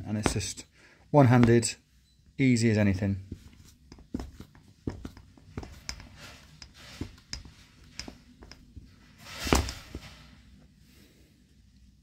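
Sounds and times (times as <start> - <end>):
saw scuffing: 1.3 - 1.7, 3.3 - 10.4.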